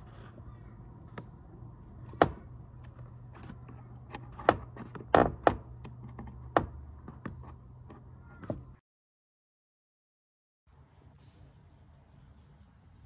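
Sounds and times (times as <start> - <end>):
hard plastic clicks and knocks: 2.0 - 8.8.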